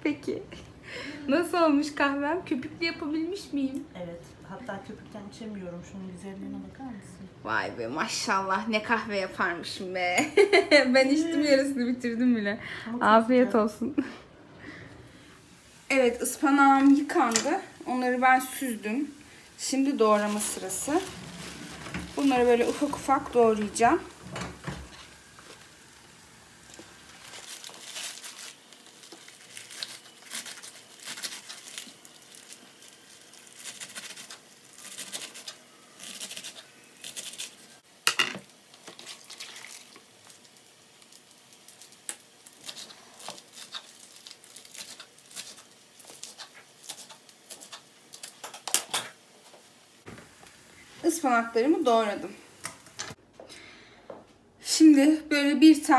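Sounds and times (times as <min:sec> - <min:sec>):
leaves rustling: 0:15.4 - 0:37.9.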